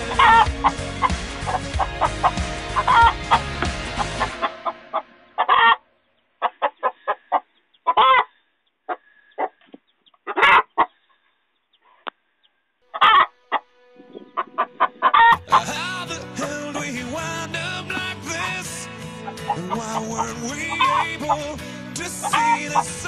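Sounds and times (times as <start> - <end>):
hen calling loudly: 0.0 - 5.8, 6.4 - 8.3, 8.9 - 10.9, 12.9 - 16.6
hen clucking: 0.0 - 5.8, 6.4 - 12.2, 12.9 - 15.8.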